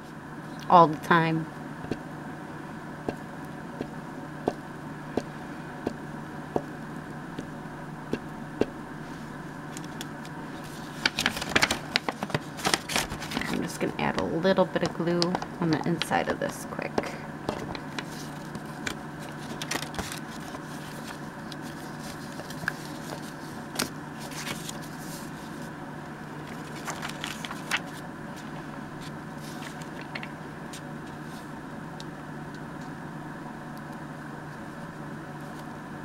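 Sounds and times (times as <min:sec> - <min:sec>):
steady low hum: 0:00.0 - 0:36.0
envelope paper rustling: 0:09.1 - 0:13.9, 0:17.6 - 0:25.7, 0:26.4 - 0:31.4.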